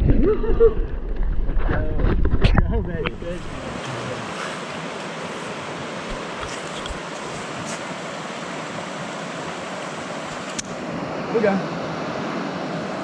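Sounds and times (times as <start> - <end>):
mountain stream rushing: 3.2 - 13.0.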